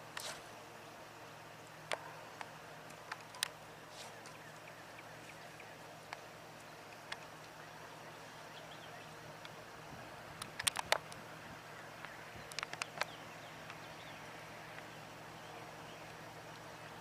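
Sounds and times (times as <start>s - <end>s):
sharp clicks: 1.9s - 3.6s, 10.4s - 11.2s, 12.0s - 13.9s
faint bird chirps: 3.2s - 10.2s.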